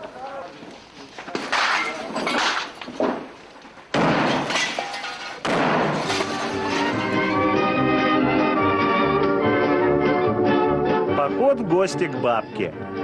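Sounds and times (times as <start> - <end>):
gunfire bangs: 3.9 - 4.7, 5.4 - 6.3
music: 6.0 - 13.0.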